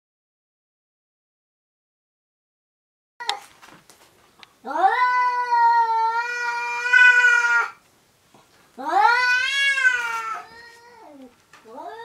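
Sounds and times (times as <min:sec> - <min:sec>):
cats yowling: 0:04.6 - 0:07.8, 0:08.8 - 0:12.0.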